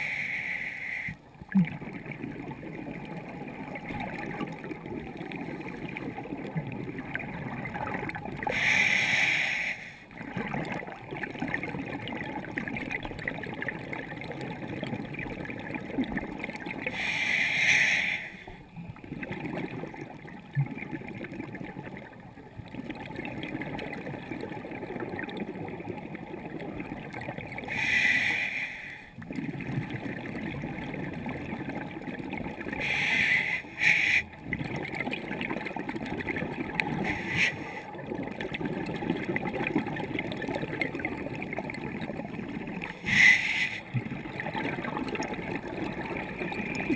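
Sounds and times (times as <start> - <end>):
low underwater hiss: 0.0 - 6.0, 7.0 - 10.8, 14.9 - 22.7, 27.5 - 30.4, 32.4 - 34.6, 36.4 - 38.4, 41.4 - 46.9
exhaled bubbles rushing: 1.4 - 8.7, 10.1 - 17.0, 18.5 - 27.8, 29.2 - 46.9.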